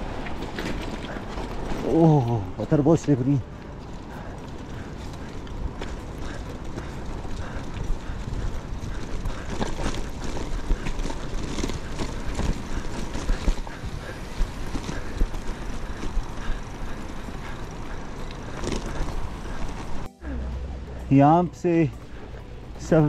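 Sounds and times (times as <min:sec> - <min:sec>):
bike clattering over rocks: 0:04.6 - 0:20.1.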